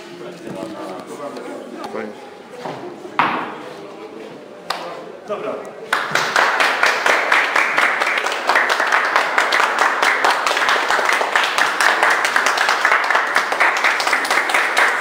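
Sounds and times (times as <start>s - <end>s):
people clapping: 4.6s - 5.1s, 5.8s - 15.0s.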